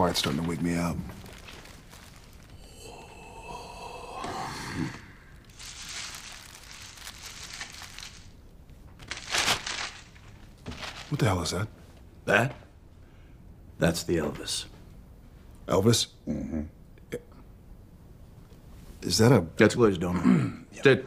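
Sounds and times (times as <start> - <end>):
paper liner crinkling: 0.0 - 2.6, 5.4 - 11.6.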